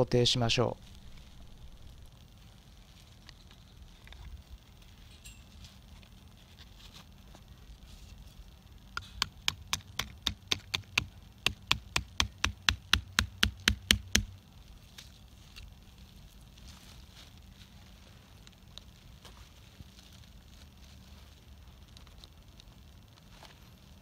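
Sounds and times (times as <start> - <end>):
hammer tapping pin into soil: 9.0 - 14.3.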